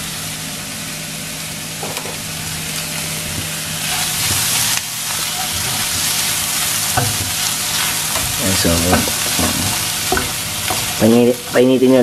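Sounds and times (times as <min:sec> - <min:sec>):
meat sizzling in a pan: 0:01.7 - 0:12.0
spatula scraping pan: 0:02.4 - 0:12.0.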